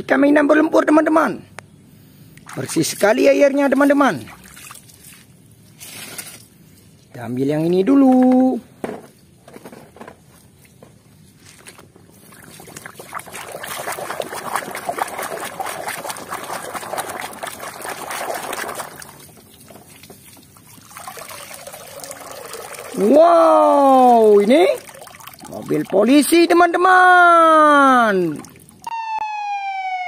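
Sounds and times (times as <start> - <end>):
water splashing and sloshing: 2.3 - 7.0, 9.1 - 26.5, 28.0 - 28.9
water dripping into basin: 12.2 - 26.3, 28.0 - 28.9.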